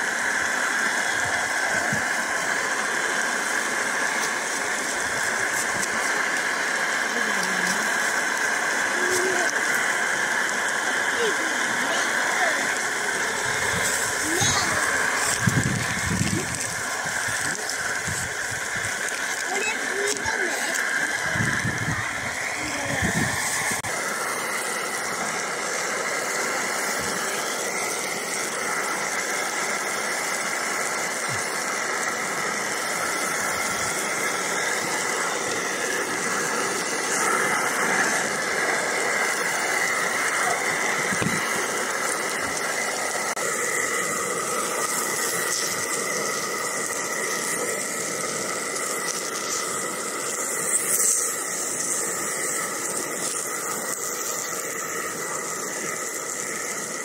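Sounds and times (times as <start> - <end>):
steak and mushrooms sizzling in a pan: 0.0 - 57.0.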